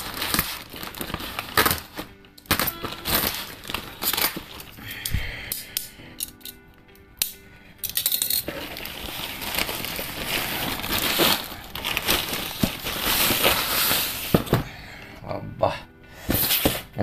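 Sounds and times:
plastic bag crinkling and rustling: 0.0 - 4.8, 8.4 - 14.7.

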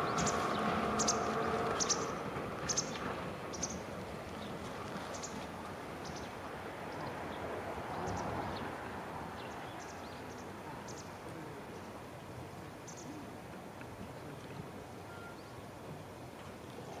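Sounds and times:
small birds chirping: 0.0 - 7.4.

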